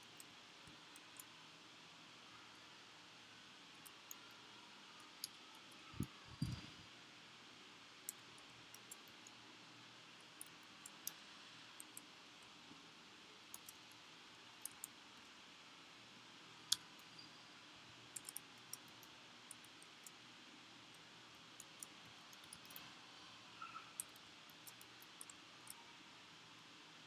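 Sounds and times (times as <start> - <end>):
faint steady hiss: 0.0 - 27.0
computer keyboard typing: 21.6 - 22.9, 24.0 - 25.8.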